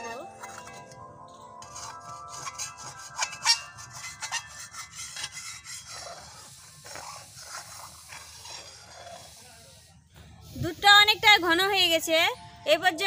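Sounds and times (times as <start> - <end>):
background music with chime tones: 0.0 - 4.6
metal ladle scraping and knocking pot: 1.6 - 9.0.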